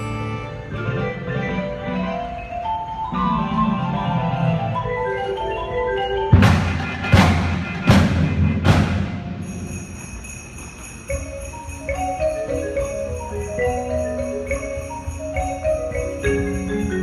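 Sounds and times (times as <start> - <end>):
marimbas playing melody: 0.0 - 17.0
loud accented percussion hits: 6.3 - 17.0
sustained high ringing: 8.5 - 17.0.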